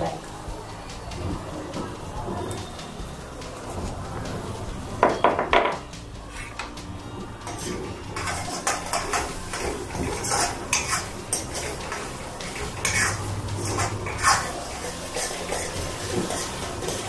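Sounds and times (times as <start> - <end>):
steel spoon scraping a pan: 7.4 - 17.0.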